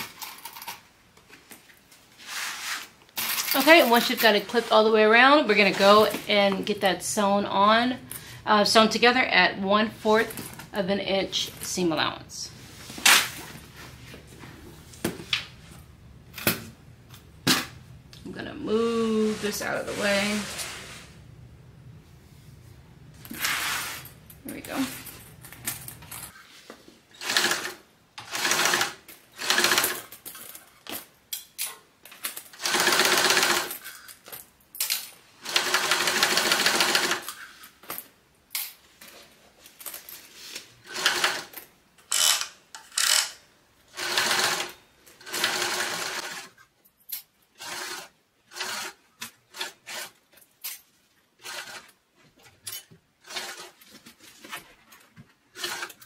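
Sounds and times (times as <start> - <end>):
sewing machine stitching: 27.2 - 30.1, 32.5 - 33.8, 35.4 - 37.3, 40.8 - 41.5, 43.9 - 46.6, 47.6 - 50.2, 51.4 - 52.0, 53.2 - 53.9, 55.5 - 56.0.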